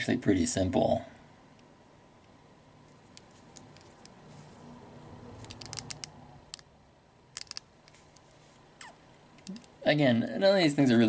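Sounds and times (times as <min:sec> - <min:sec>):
plastic action figure clicks: 0:05.4 - 0:06.7, 0:07.4 - 0:07.7.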